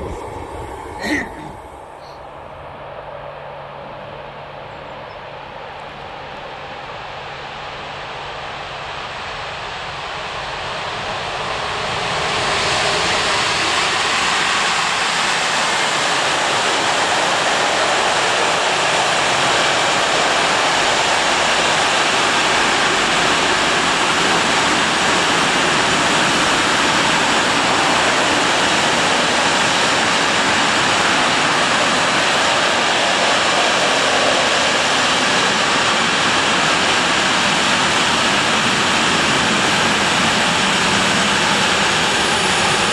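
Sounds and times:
freight train wheels rushing on rail: 0:00.0 - 0:42.9.

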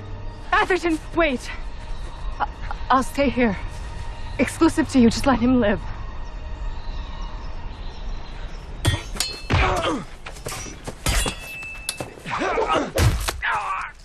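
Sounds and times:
steel blades clashing: 0:11.0 - 0:12.0.

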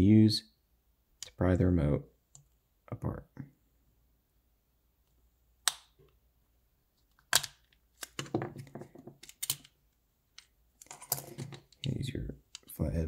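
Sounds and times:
plastic snapping: 0:05.6 - 0:06.0.

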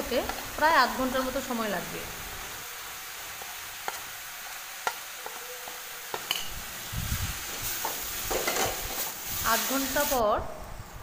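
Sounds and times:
food sizzling in oil: 0:00.0 - 0:10.9
stirring food in pan: 0:02.8 - 0:06.6.

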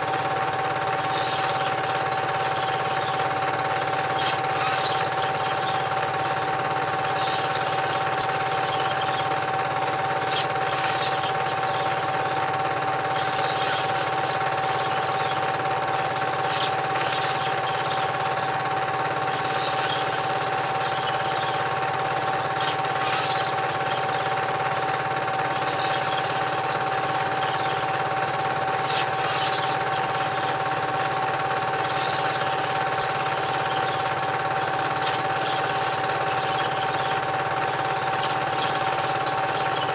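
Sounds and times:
film projector whirring and clattering: 0:00.0 - 0:39.9.

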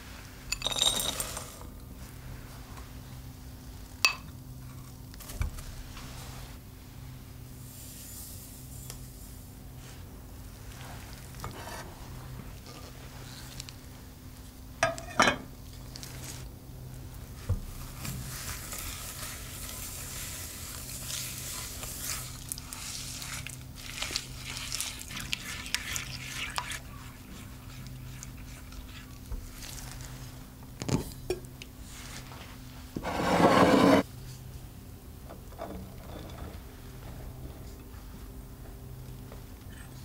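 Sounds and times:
spatula scraping glass bowl: 0:23.9 - 0:29.2, 0:33.0 - 0:34.1.

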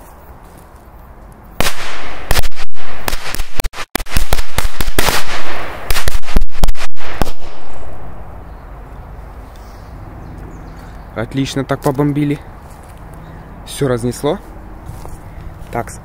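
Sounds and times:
firecrackers banging: 0:01.6 - 0:07.9.

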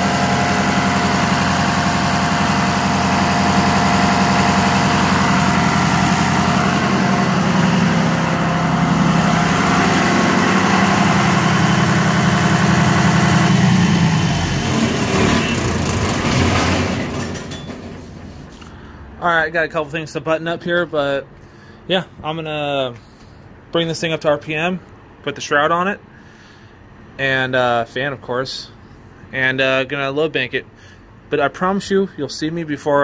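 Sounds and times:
engine knocks: 0:00.0 - 0:18.6
diesel engine idling: 0:00.0 - 0:19.2.

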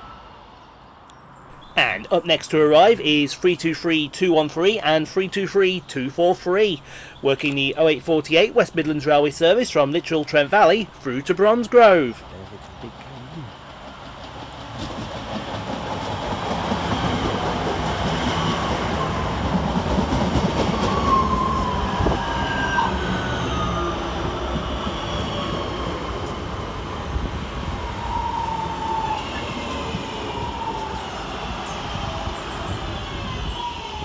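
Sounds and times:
train wheels rumbling on rail: 0:12.2 - 0:34.0.

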